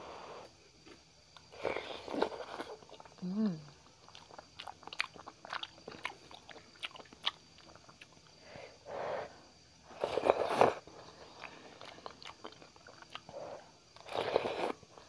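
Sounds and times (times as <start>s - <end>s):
chewing with wet mouth clicks: 3.8s - 8.4s, 11.2s - 14.2s
slurping from a spoon: 9.9s - 10.9s, 14.0s - 14.8s.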